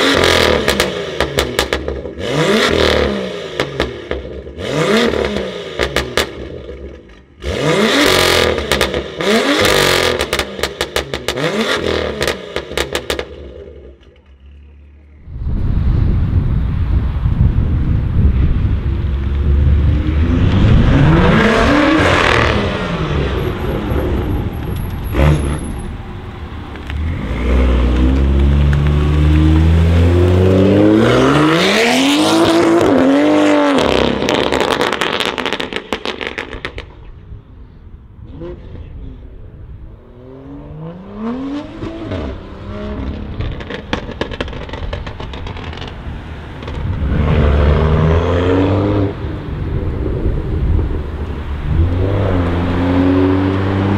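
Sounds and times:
car engine revving and accelerating: 0.0 - 14.0, 19.0 - 36.8, 40.1 - 53.9
exhaust pops and crackles: 27.8 - 30.6, 33.7 - 37.3, 43.0 - 47.1.

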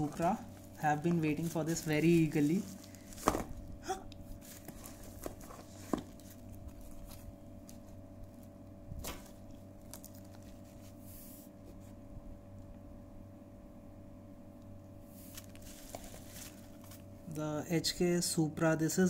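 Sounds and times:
packaging rustling: 0.0 - 11.0, 15.2 - 17.1
steady low hum: 0.0 - 19.0.

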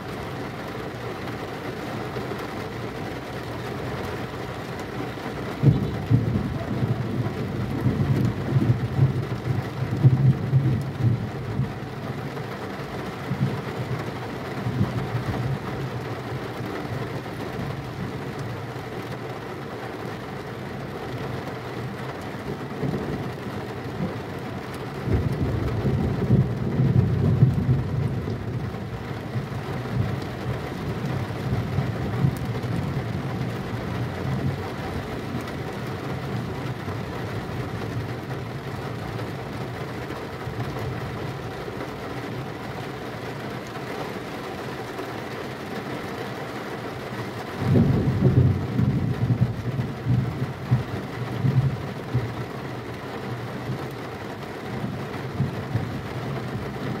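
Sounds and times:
heavy rain: 0.0 - 57.0
rolling thunder: 25.0 - 28.5, 47.6 - 52.3.

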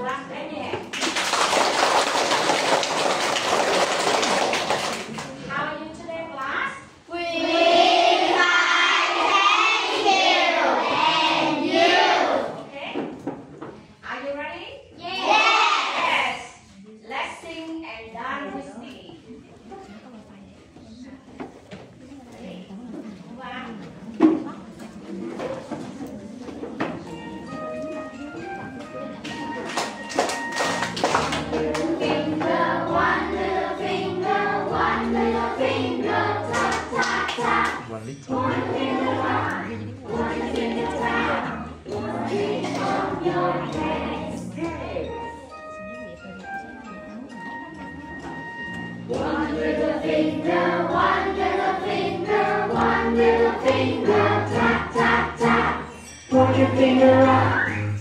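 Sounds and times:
children singing: 7.2 - 12.6, 31.3 - 45.0, 49.1 - 58.0
backing music with bass line: 48.9 - 58.0.

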